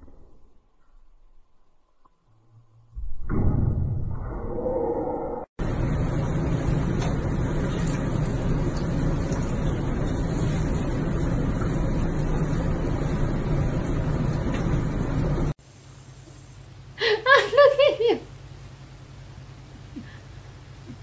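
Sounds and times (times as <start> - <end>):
low hum: 0.0 - 21.0
water churning in bathtub: 5.6 - 15.6.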